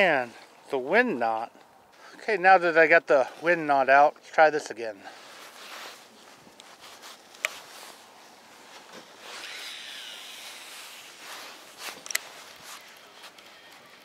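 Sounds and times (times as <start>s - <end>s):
fishing line whirring off spool: 9.1s - 14.0s.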